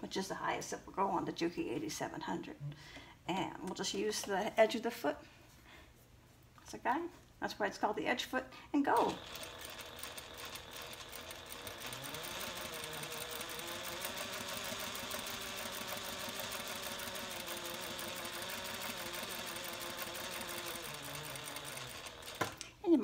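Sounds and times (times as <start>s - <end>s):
sewing machine running: 9.0s - 22.7s.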